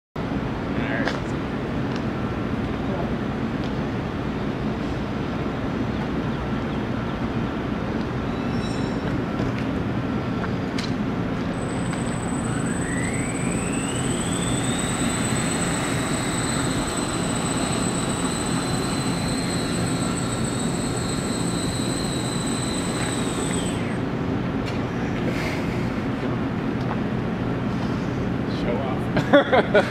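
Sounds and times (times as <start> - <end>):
drone motors whining: 11.4 - 24.3.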